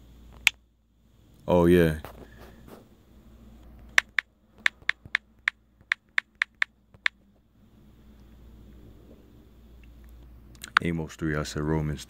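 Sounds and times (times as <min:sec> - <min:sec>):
faint low hum: 0:00.0 - 0:12.0
phone keyboard clicks: 0:03.8 - 0:07.2.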